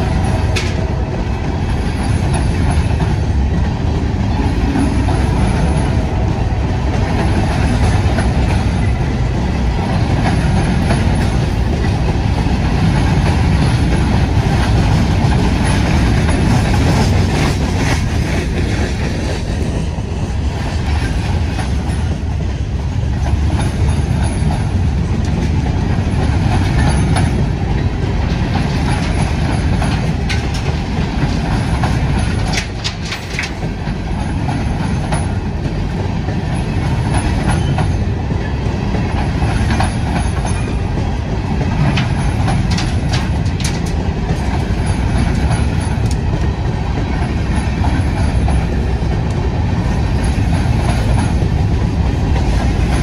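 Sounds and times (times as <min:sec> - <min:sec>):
train wheels rumbling on rail: 0:00.0 - 0:53.0
clicks from train trucks: 0:00.2 - 0:01.0, 0:23.2 - 0:38.4, 0:39.0 - 0:49.5.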